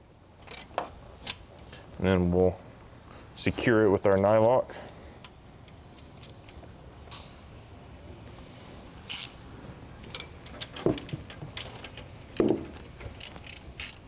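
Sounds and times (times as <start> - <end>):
metallic clicks and knocks: 10.0 - 14.0
hand ratchet clicking: 13.1 - 14.0.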